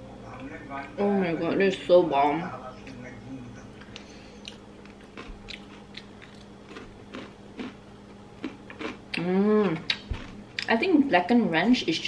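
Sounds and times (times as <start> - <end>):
crunchy chewing: 3.8 - 9.2, 9.8 - 10.7.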